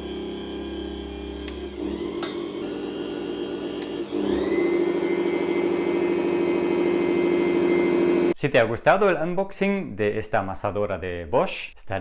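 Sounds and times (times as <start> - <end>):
stand mixer motor whirring: 0.0 - 8.4.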